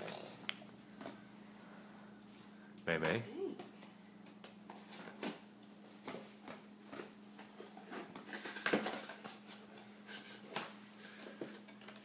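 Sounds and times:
faint steady hum: 0:00.0 - 0:12.0
toys and packaging rustling: 0:04.6 - 0:12.0.

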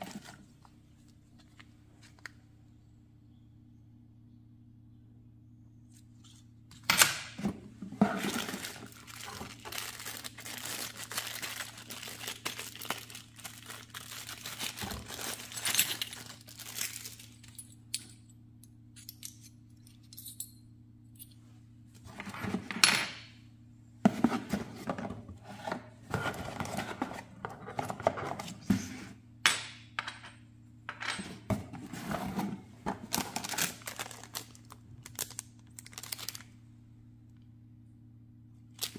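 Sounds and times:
steady low hum: 0:00.0 - 0:38.9
plastic bags rustling: 0:07.7 - 0:17.5, 0:31.9 - 0:36.5.

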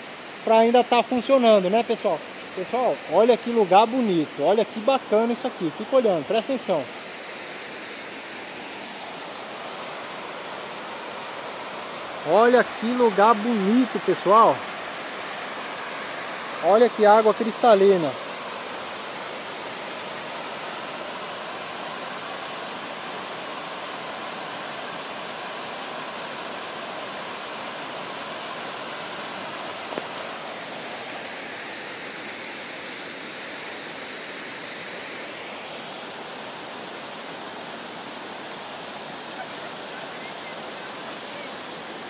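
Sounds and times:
waterfall rushing: 0:00.0 - 0:42.0.

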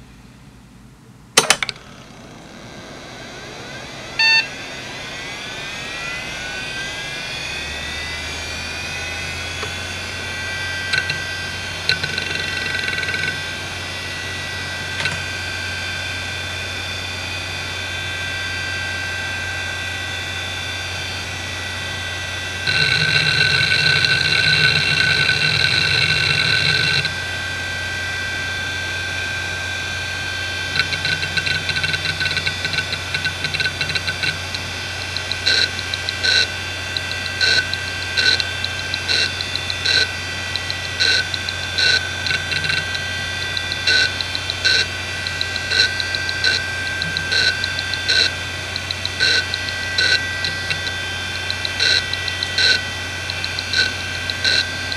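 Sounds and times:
hard drive spindle whine: 0:00.0 - 0:54.9
hard drive head clicking: 0:10.9 - 0:13.5, 0:30.7 - 0:54.9.

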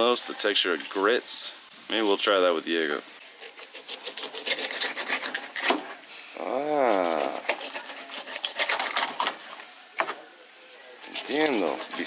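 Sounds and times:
person saying ah: 0:06.4 - 0:07.4.

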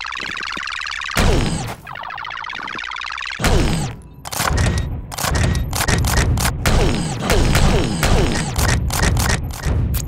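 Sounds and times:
warbling electronic sci-fi tone: 0:00.0 - 0:03.5
rapid bangs and clicks: 0:02.6 - 0:10.0.

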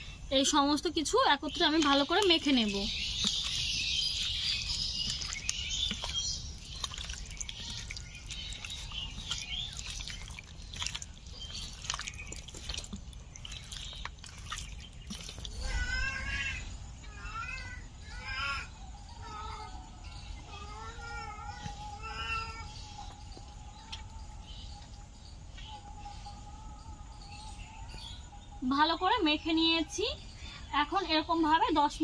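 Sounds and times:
hands squelching in marinade: 0:01.5 - 0:15.6.

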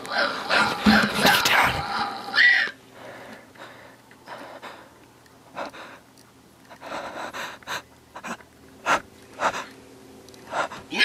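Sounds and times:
man breathing heavily: 0:02.9 - 0:09.8, 0:10.4 - 0:11.0.

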